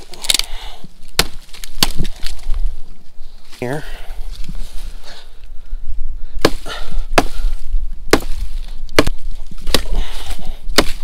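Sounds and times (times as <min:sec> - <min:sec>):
wood chopping strokes: 0:01.1 - 0:02.4, 0:06.4 - 0:11.0.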